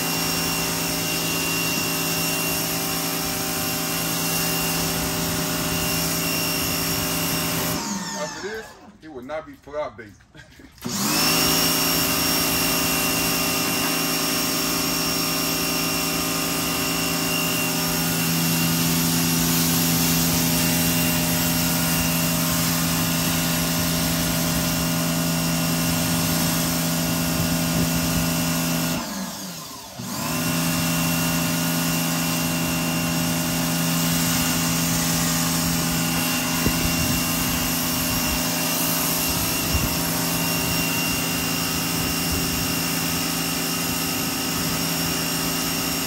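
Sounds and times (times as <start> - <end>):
pressure washer running: 0.0 - 8.9, 10.6 - 46.0.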